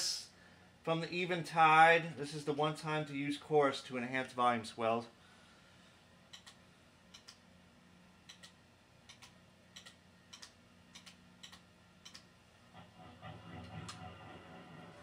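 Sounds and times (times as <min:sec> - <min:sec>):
tube amp hum: 0:10.0 - 0:15.0.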